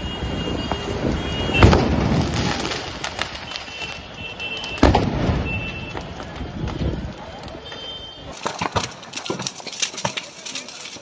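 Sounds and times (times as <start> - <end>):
firecracker pops and crackles: 0.8 - 11.0
loud firecracker bangs: 1.4 - 4.0, 4.6 - 6.8.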